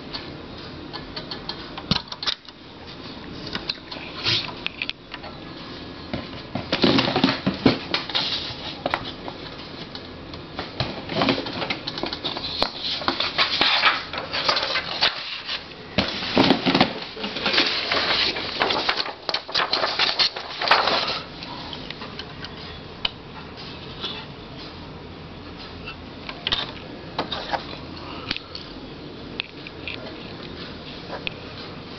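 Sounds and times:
typewriter clicks and clatter: 0:17.4 - 0:21.3.

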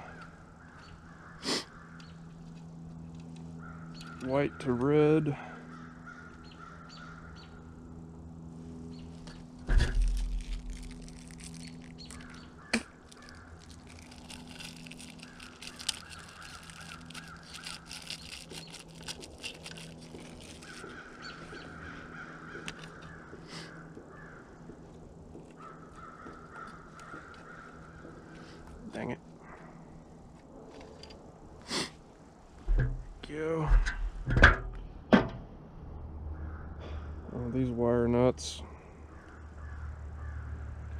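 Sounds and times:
wires twisting and rustling: 0:09.1 - 0:23.1, 0:24.8 - 0:29.0
thump: 0:09.7 - 0:10.0, 0:33.7 - 0:35.4.

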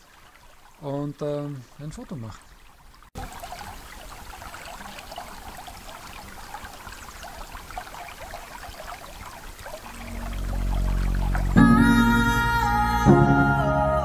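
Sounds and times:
brook babbling over stones: 0:00.0 - 0:11.8
soft music: 0:09.9 - 0:14.0.

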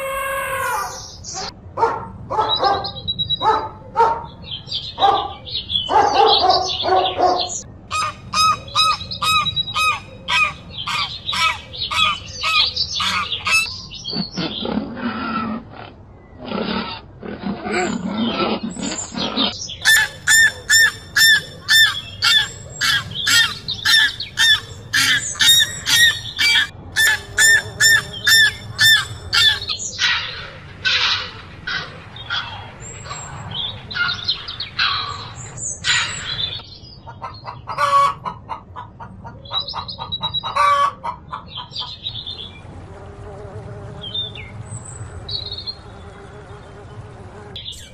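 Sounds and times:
geese honking: 0:07.9 - 0:13.7, 0:19.8 - 0:29.7.

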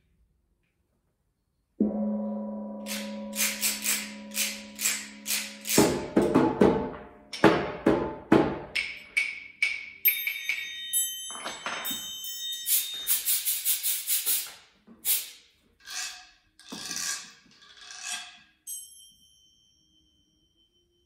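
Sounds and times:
struck metal chime ringing: 0:01.8 - 0:06.2, 0:08.9 - 0:13.2.

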